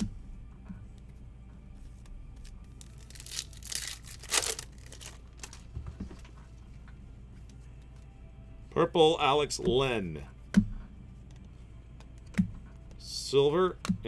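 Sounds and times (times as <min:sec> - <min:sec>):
foil wrapper tearing and crinkling: 0:02.8 - 0:05.7.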